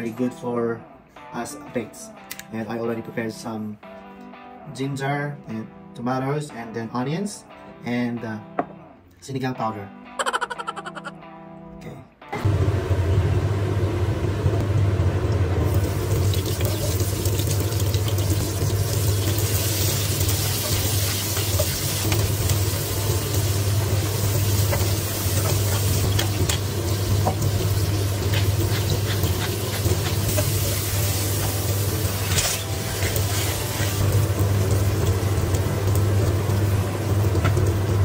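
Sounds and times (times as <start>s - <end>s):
food sizzling in wok: 15.6s - 38.0s
spatula scraping pan: 28.2s - 30.8s.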